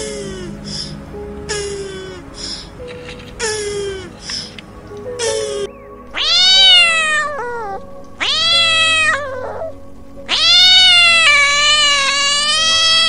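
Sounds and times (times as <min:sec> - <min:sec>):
cat meowing: 0:06.2 - 0:09.7, 0:10.3 - 0:13.0.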